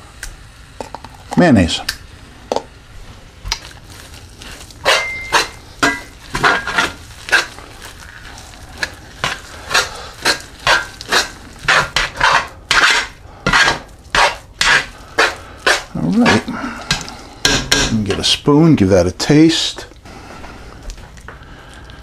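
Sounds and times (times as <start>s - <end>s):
spoon scraping beans in skillet: 2.4s - 18.5s.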